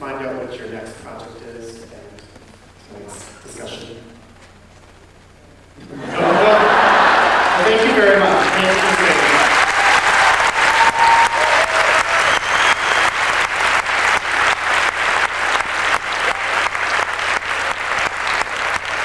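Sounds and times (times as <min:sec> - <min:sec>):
audience applauding: 0:05.9 - 0:19.0
close hands clapping in even beat: 0:08.4 - 0:19.0.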